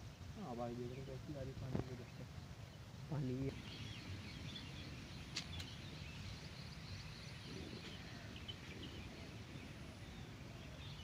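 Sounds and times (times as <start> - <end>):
distant bird chirps: 0.0 - 11.0.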